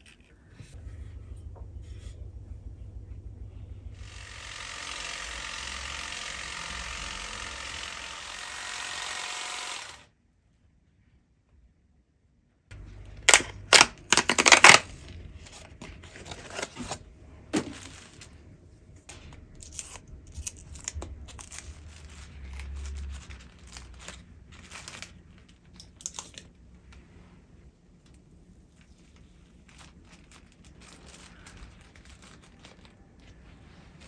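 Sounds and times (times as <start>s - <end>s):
foil wrapper crinkling: 12.8s - 17.0s, 19.4s - 26.5s, 28.8s - 34.0s
cardboard box tearing: 13.3s - 14.9s.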